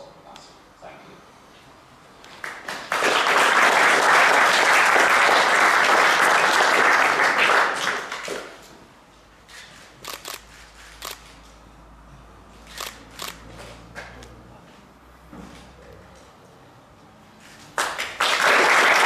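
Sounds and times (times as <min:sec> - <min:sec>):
audience applauding: 0:02.4 - 0:08.6, 0:17.8 - 0:19.0.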